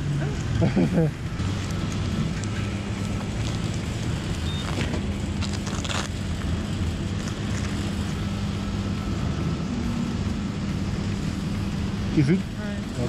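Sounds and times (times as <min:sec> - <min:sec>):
plastic crinkle: 0:01.5 - 0:08.2.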